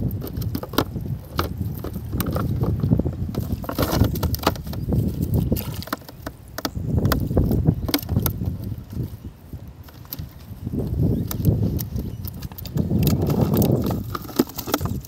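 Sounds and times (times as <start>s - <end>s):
clicks and rustles of net handling: 0.0s - 15.0s
wind buffeting microphone: 0.0s - 15.0s.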